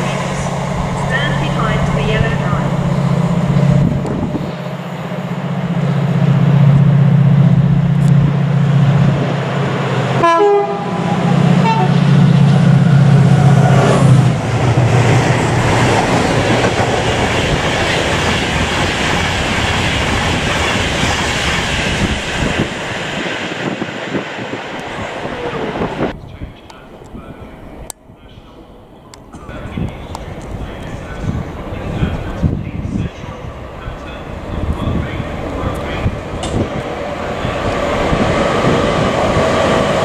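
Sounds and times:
train wheels on rails: 0.0s - 10.2s, 11.0s - 27.1s, 29.2s - 40.0s
diesel locomotive engine drone: 0.0s - 40.0s
train horn blast: 10.2s - 12.1s.

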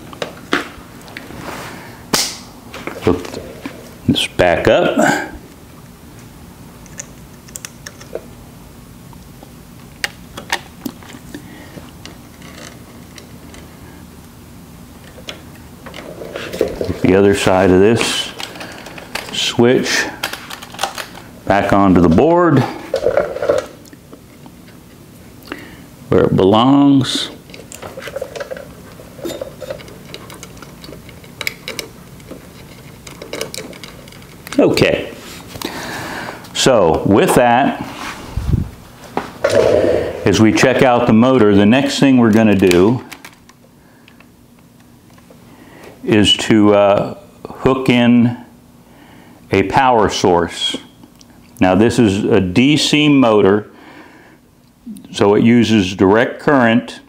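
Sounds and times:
steady low hum: 0.0s - 56.6s
wire connectors clicking: 6.8s - 8.2s, 29.6s - 34.6s.

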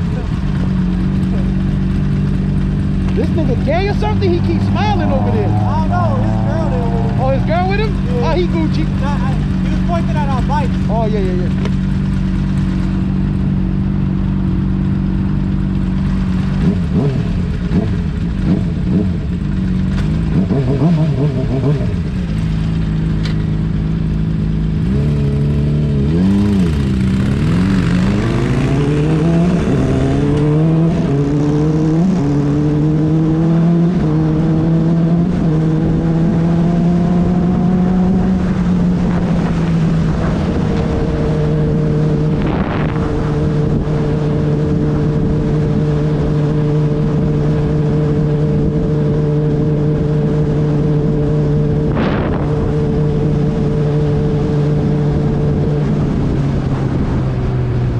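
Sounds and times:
motorcycle engine accelerating: 0.0s - 57.9s
wind rushing past: 38.3s - 45.5s, 51.6s - 53.8s.

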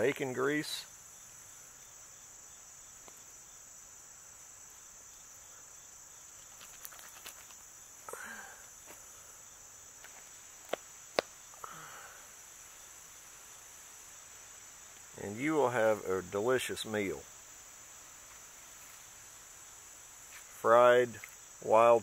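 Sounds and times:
insects chirring: 0.0s - 22.0s
faint rustling: 6.2s - 7.8s.

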